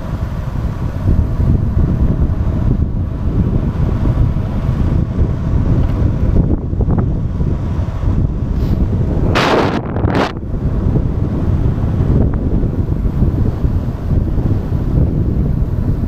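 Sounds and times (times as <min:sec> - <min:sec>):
wind buffeting microphone: 0:00.0 - 0:16.0
short hiss: 0:08.5 - 0:09.8.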